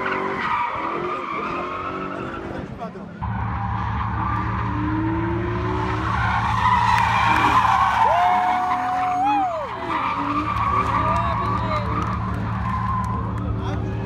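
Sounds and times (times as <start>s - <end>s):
car engine running hard: 1.2s - 14.0s.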